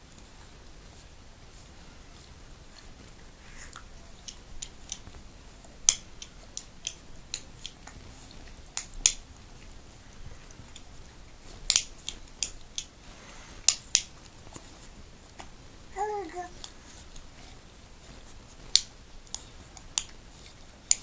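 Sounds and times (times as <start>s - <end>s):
loud dog jaw snaps: 5.8s - 9.2s, 11.5s - 13.0s, 13.6s - 14.2s
dog mouth clicks and smacks: 5.8s - 9.7s, 10.4s - 13.0s.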